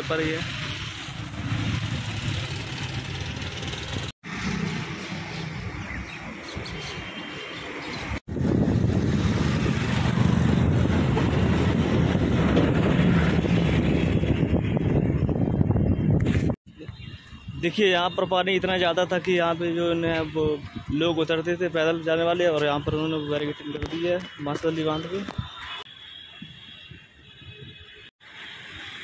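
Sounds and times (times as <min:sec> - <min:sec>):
rushing vehicle noise: 0:00.0 - 0:29.0
wind noise: 0:08.3 - 0:17.8, 0:20.0 - 0:21.2.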